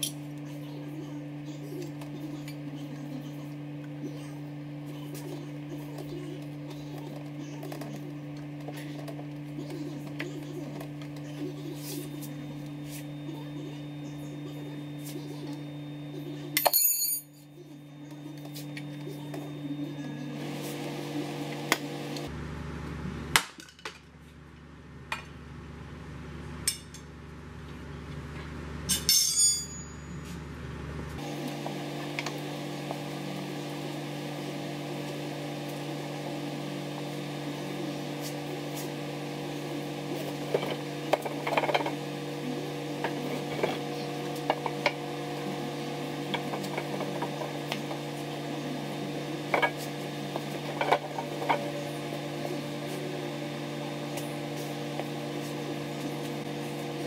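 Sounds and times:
steady hum: 0:29.6 - 0:57.0.

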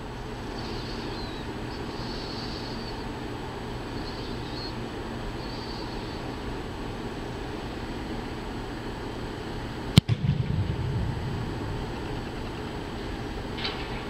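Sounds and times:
steady background hum: 0:00.0 - 0:14.0
low booming echo: 0:10.0 - 0:13.5.

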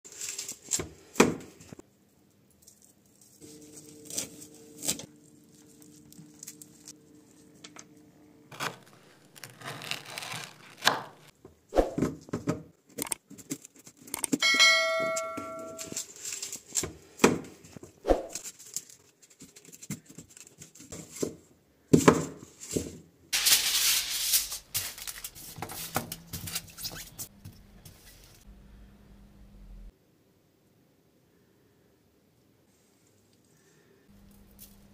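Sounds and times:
aluminium foil crinkling: 0:00.1 - 0:00.8, 0:02.1 - 0:07.6, 0:08.5 - 0:11.3, 0:15.8 - 0:17.0, 0:18.4 - 0:21.2, 0:23.4 - 0:28.4, 0:34.2 - 0:34.9
bell chime ringing: 0:14.4 - 0:16.0.

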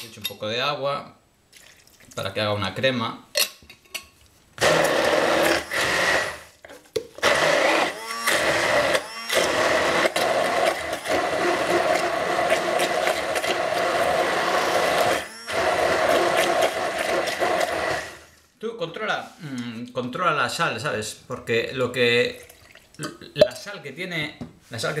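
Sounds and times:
immersion blender motor: 0:04.6 - 0:06.6, 0:07.2 - 0:18.4.

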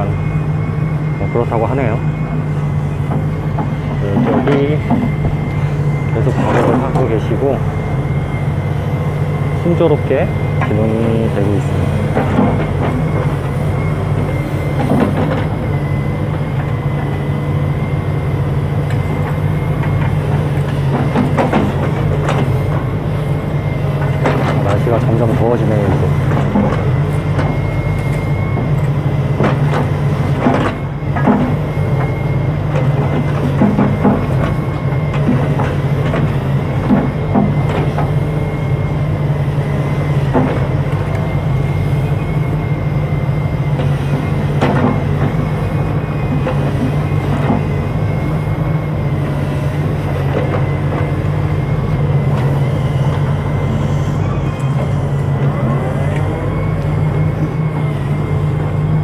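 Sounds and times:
excavator diesel engine running: 0:00.0 - 0:59.0
high whine: 0:00.0 - 0:59.0
knocks and clanks: 0:03.0 - 0:05.5, 0:06.2 - 0:07.3, 0:11.8 - 0:13.6, 0:14.2 - 0:15.7, 0:18.9 - 0:22.9, 0:24.0 - 0:27.6, 0:29.3 - 0:38.2, 0:40.2 - 0:41.1, 0:43.8 - 0:45.6, 0:46.3 - 0:47.8.

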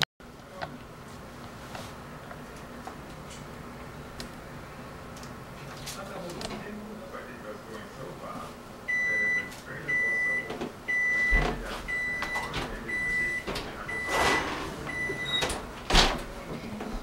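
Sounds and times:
appliance timer beeping: 0:08.9 - 0:15.7
oven door clunks: 0:13.5 - 0:16.4.

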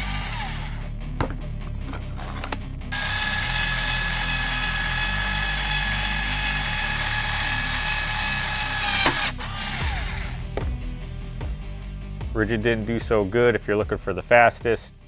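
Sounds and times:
caulk gun motor whine: 0:00.0 - 0:00.8, 0:02.9 - 0:10.7
background music: 0:00.0 - 0:15.0.

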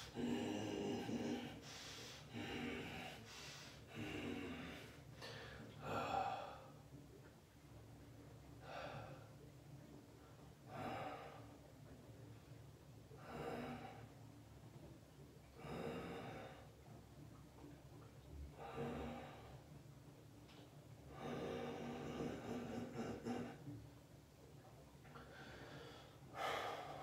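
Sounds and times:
man breathing heavily: 0:00.0 - 0:06.7, 0:25.3 - 0:27.0.

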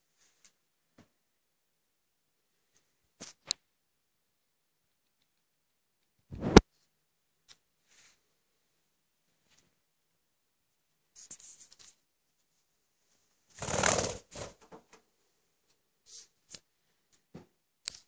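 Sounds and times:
soft rustles and scuffs: 0:00.0 - 0:01.1, 0:07.8 - 0:08.3.

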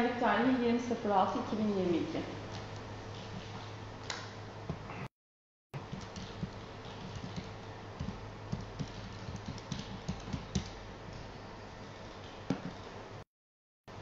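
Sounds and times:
low electrical hum: 0:00.0 - 0:05.1, 0:05.8 - 0:13.2
laptop keyboard typing: 0:05.8 - 0:10.8.

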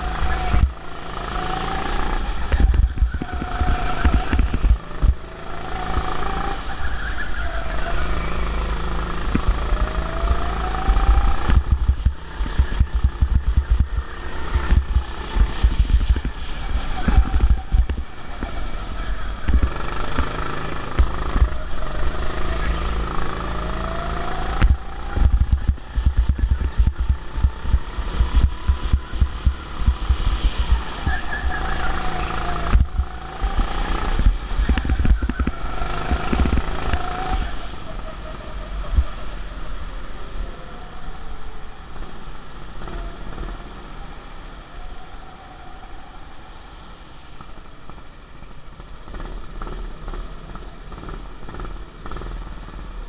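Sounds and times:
go-kart motor revving: 0:00.0 - 0:53.0
low rumbling thumps: 0:24.6 - 0:30.7.

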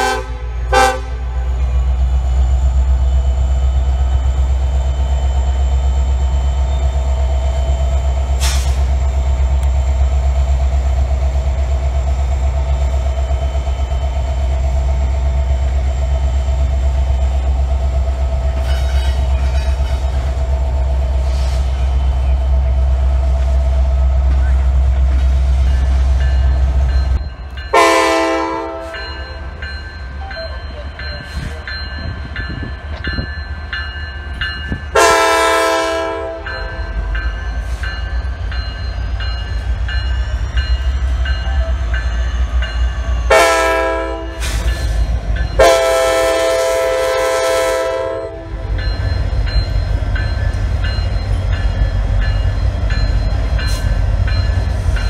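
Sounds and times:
locomotive air horn blasts: 0:00.0 - 0:01.2, 0:27.7 - 0:29.0, 0:34.9 - 0:36.8, 0:43.3 - 0:44.5, 0:45.6 - 0:48.6
train rumble: 0:00.0 - 0:55.0.

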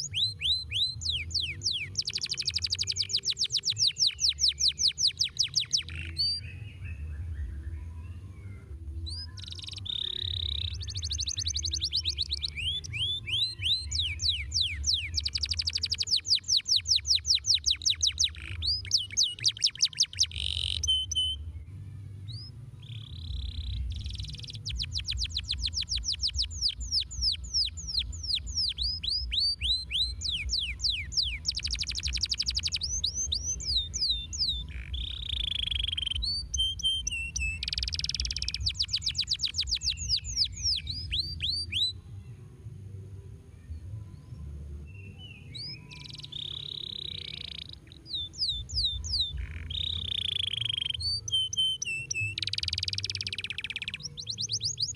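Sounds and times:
canary singing trills: 0:00.0 - 0:21.5, 0:22.2 - 0:42.0, 0:43.9 - 0:54.9.

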